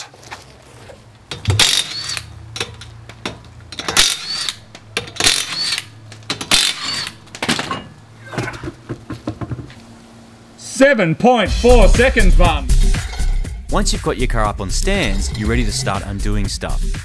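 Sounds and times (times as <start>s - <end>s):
impact wrench rattling: 1.3s - 7.9s.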